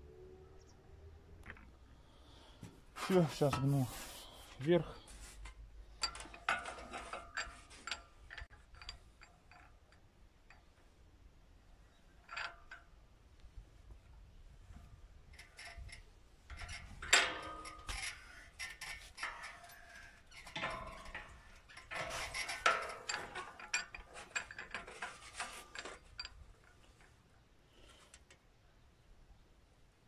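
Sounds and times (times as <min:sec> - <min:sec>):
metallic scraping: 0:14.8 - 0:26.4
vise handle clanking and rattling: 0:15.4 - 0:26.4.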